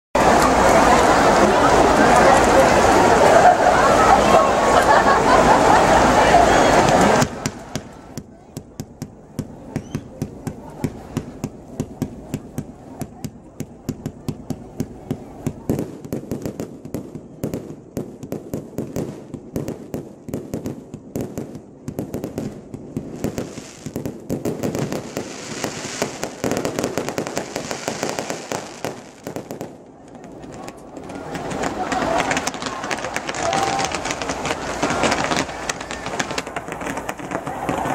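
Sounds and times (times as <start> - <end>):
fireworks crackling pops: 6.7 - 37.9
fireworks sparks hissing: 18.8 - 37.9.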